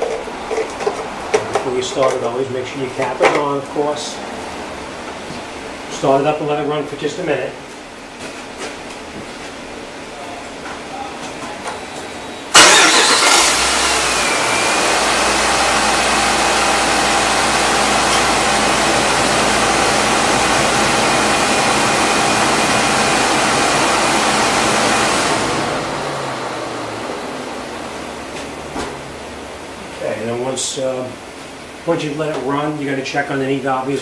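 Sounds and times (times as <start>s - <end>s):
engine idling: 12.5s - 28.2s
engine starting: 12.6s - 14.6s.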